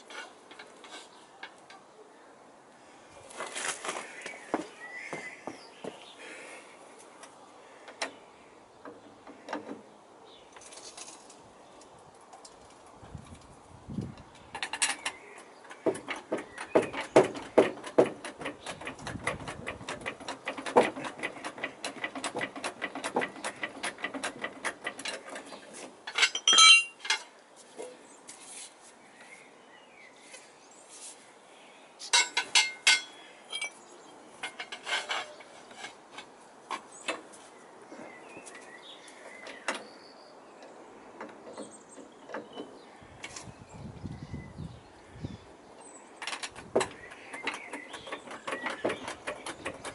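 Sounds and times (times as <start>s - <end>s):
trolley jack clicking: 14.6s - 27.2s, 46.2s - 49.9s
steel bars clanking: 14.6s - 27.3s, 32.1s - 33.8s, 34.4s - 36.3s.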